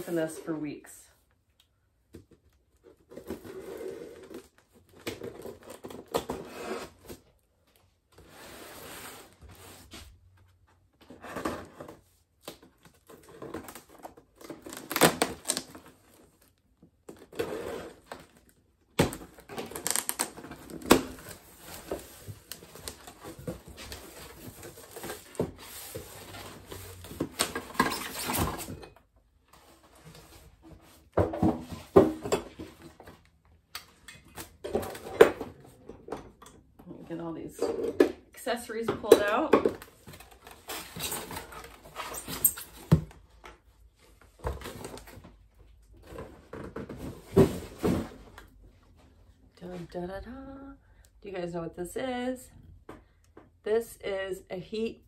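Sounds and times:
packing tape ripping: 14.5s - 15.8s, 19.5s - 21.3s.

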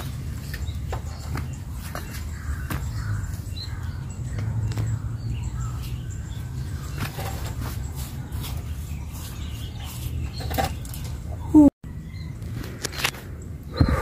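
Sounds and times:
faint bird calls: 13.6s - 14.0s.

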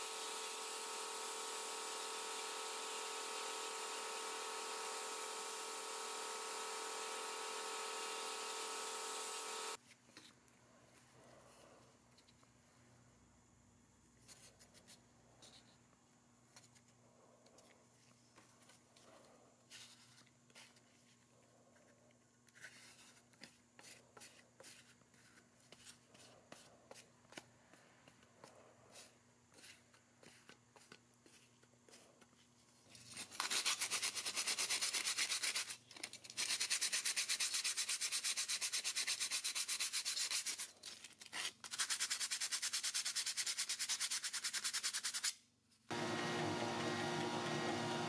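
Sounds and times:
hand sanding metal blade: 33.1s - 45.4s.

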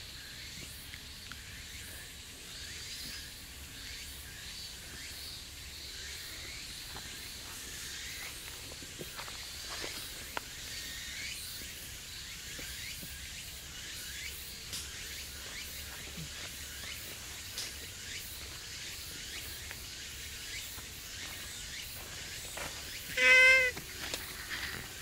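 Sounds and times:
insects chirping: 0.0s - 25.0s
cat meowing: 23.2s - 23.8s.

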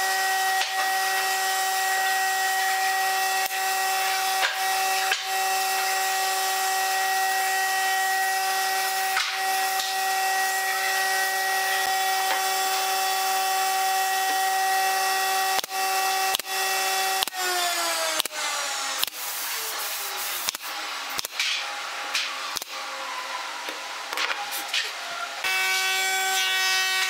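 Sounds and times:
pneumatic nailer firing: 3.4s - 5.9s, 8.7s - 10.2s, 15.2s - 22.8s.

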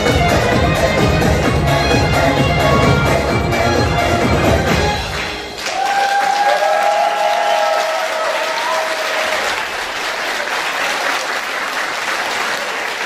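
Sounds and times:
audience applauding: 5.1s - 13.0s
crowd cheering: 5.4s - 13.0s.

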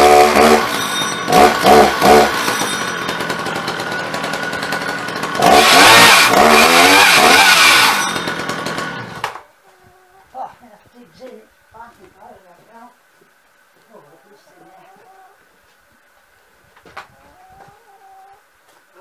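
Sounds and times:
chainsaw cutting into log: 0.0s - 9.4s
chainsaw revving: 0.0s - 9.4s.

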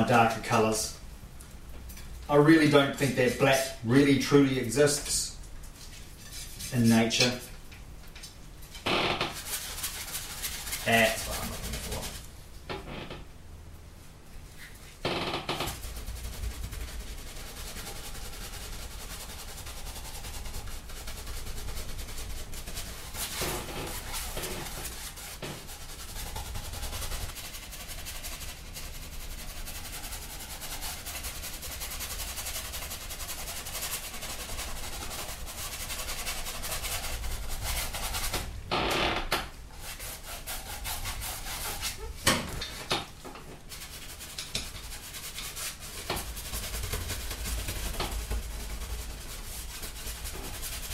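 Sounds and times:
paintbrush rubbing on canvas: 9.2s - 12.3s, 14.6s - 38.4s, 39.7s - 42.2s, 43.6s - 50.9s.

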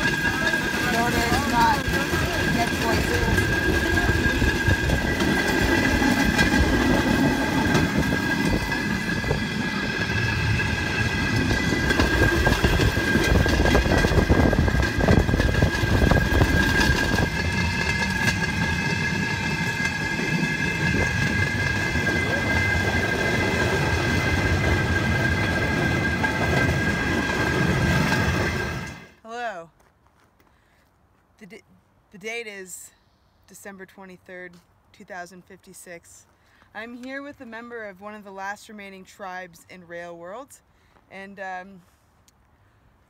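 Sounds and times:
high-pitched whine: 0.0s - 29.1s
wheels clattering on rails: 0.0s - 29.2s.

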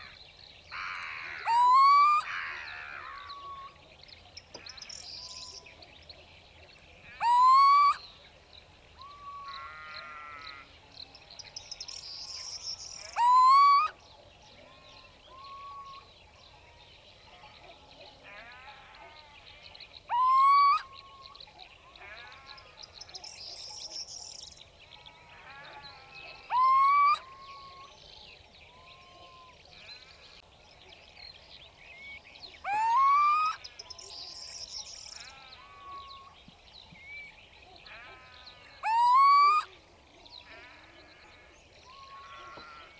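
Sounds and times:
owl rising call: 1.4s - 2.2s, 38.8s - 39.7s.

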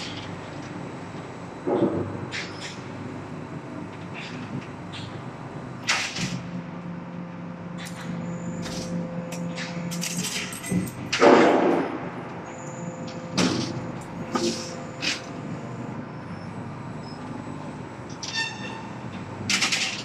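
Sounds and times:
hydraulic unit humming: 0.0s - 20.0s.

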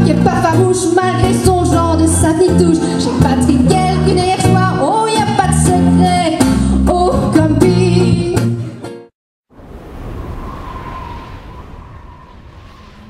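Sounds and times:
live pop song with singing: 0.0s - 8.5s
rushing noise: 9.5s - 13.0s.

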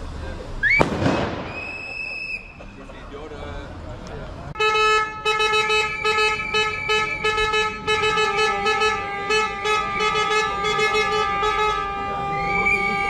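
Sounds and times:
horns blaring steady tones: 4.5s - 13.0s
short horn blasts: 4.6s - 13.0s.

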